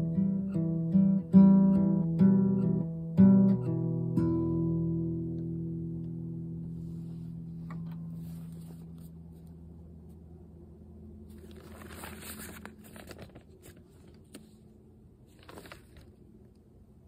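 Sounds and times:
acoustic guitar notes ringing: 0.0 - 9.4
paper pages rustling: 7.0 - 9.6, 11.3 - 16.4.

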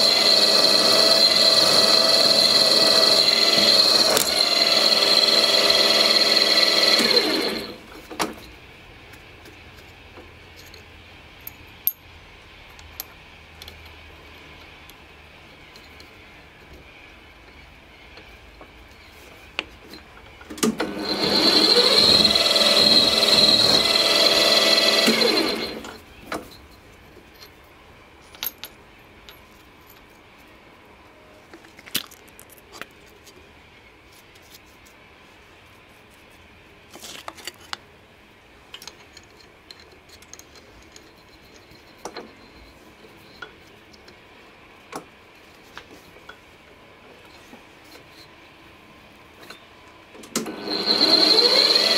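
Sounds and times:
drill motor whining: 0.0 - 7.8, 20.7 - 26.0, 50.4 - 51.9.

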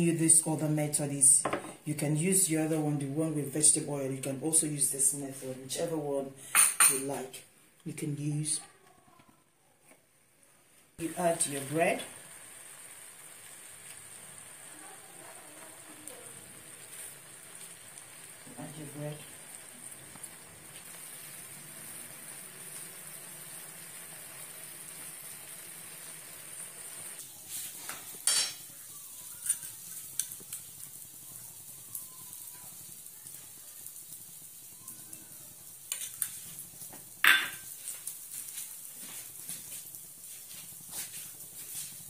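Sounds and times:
frying sizzle: 11.0 - 42.0.

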